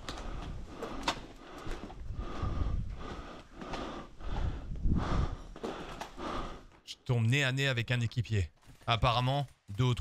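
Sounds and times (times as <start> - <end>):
person breathing hard: 0.0 - 6.8.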